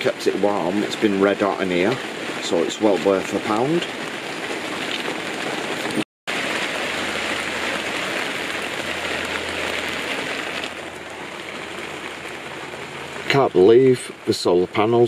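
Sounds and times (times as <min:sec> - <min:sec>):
heavy rain on tent fabric: 0:00.0 - 0:15.0.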